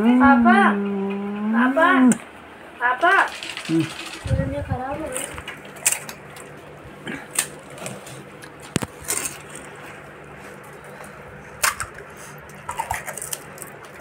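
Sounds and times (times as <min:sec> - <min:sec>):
crisp puris crunching: 0:03.2 - 0:04.3, 0:05.0 - 0:14.0.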